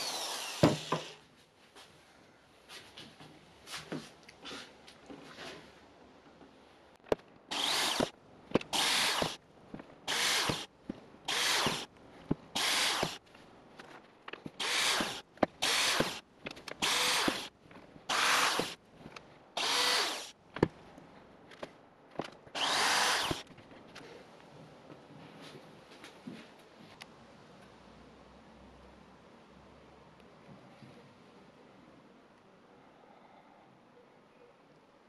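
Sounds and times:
power drill boring into wax: 0.0s - 1.2s, 7.5s - 8.1s, 8.7s - 9.4s, 10.1s - 10.7s, 11.3s - 11.9s, 12.6s - 13.2s, 14.6s - 16.2s, 16.8s - 17.5s, 18.1s - 18.8s, 19.6s - 20.3s, 22.6s - 23.4s.

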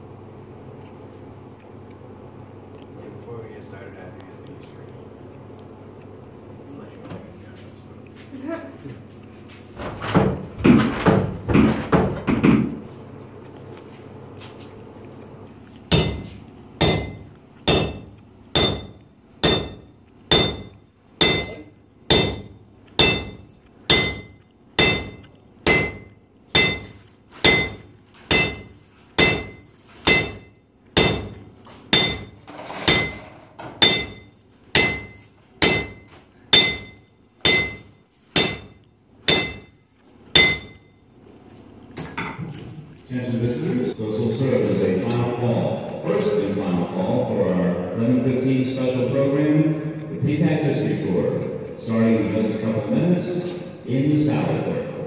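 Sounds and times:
hammer striking metal on anvil: 15.9s - 33.2s, 33.8s - 39.8s, 40.4s - 40.9s.

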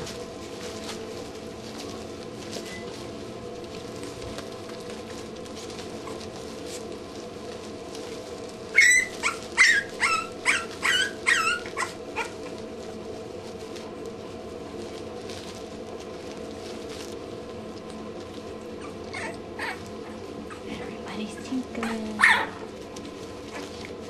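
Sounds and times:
puppies whimpering: 8.7s - 12.6s, 18.6s - 20.8s.

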